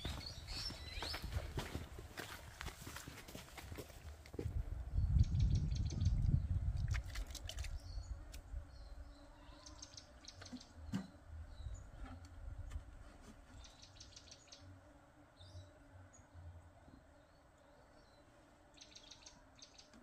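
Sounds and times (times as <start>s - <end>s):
cup scooping water: 6.7s - 7.8s.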